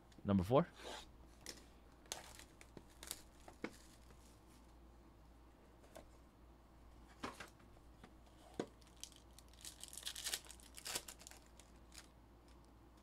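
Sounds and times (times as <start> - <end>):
foil wrapper tearing and crinkling: 8.8 - 12.1.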